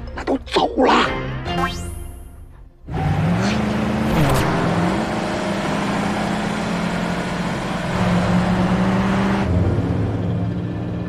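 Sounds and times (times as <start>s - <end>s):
car engine revving: 2.8s - 11.0s
road noise rushing: 2.9s - 10.9s.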